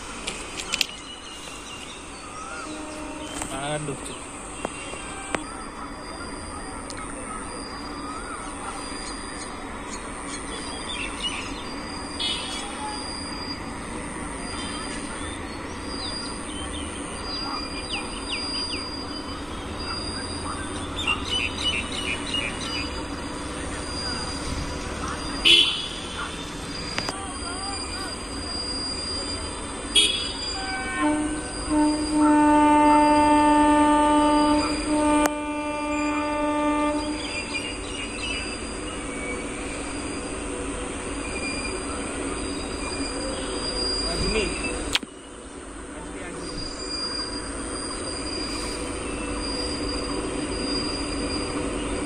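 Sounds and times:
birds chirping: 0.0 - 52.0
freight train rumble: 0.0 - 52.0
locomotive horn: 2.5 - 4.0, 25.4 - 26.6, 29.9 - 37.6.

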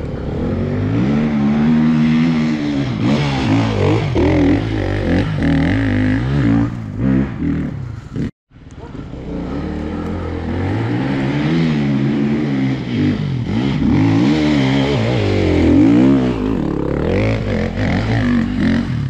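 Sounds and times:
motorcycle engine revving: 0.0 - 8.3, 8.9 - 19.0.

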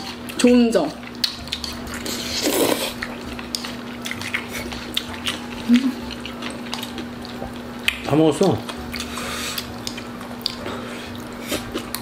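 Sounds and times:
chewing: 0.0 - 12.0
steady low hum: 0.0 - 12.0.

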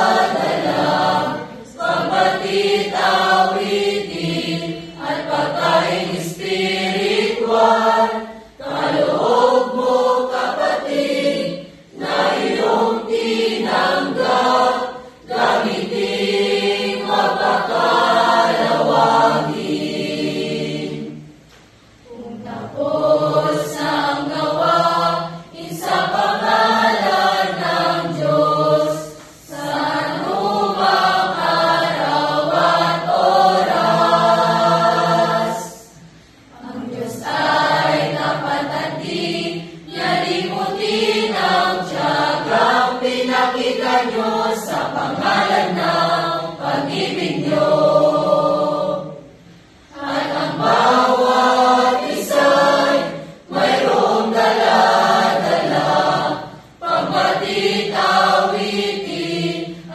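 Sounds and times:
mixed choir singing: 0.0 - 59.9
singers breathing: 35.9 - 36.6.

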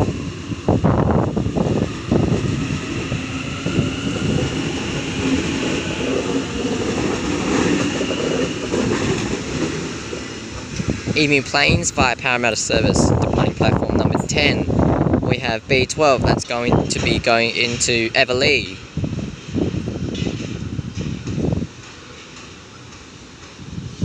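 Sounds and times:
train wheels rumbling on rails: 0.0 - 24.0
train wheels clacking: 2.4 - 11.1, 20.0 - 23.8.

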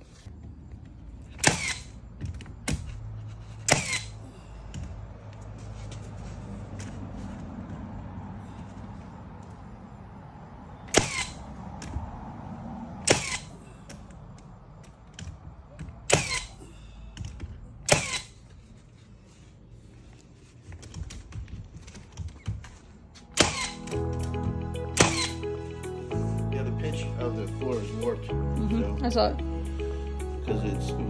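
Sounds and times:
nail gun shots: 1.4 - 2.0, 3.6 - 4.1, 10.9 - 11.4, 13.0 - 13.5, 16.1 - 16.6, 17.8 - 18.4, 23.3 - 24.0, 25.0 - 25.4.

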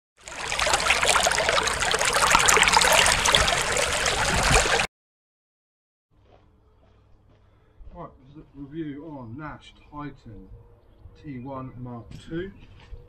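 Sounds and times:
rushing trickling noise: 0.2 - 4.9.

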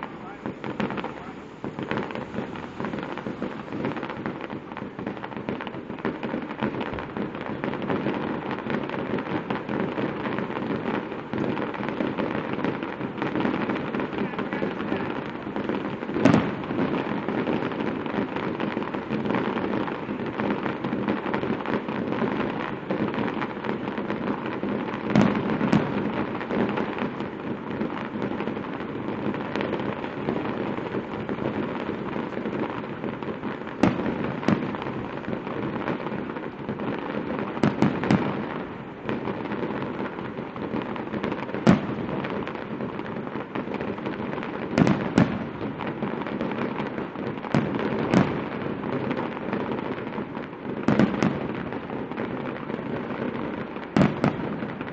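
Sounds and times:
firework shells banging: 0.0 - 5.7.

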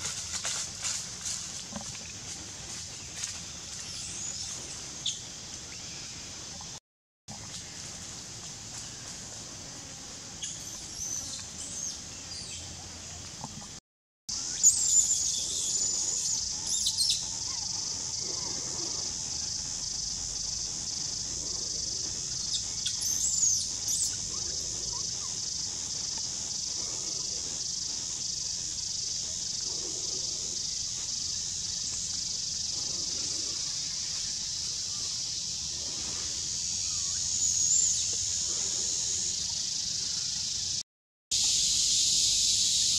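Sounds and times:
high-pitched insect drone: 14.3 - 40.8, 41.4 - 42.9.

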